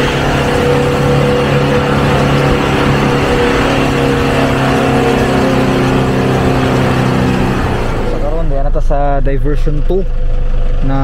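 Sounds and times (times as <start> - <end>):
truck engine running: 0.0 - 11.0
tyre and road noise: 0.0 - 11.0.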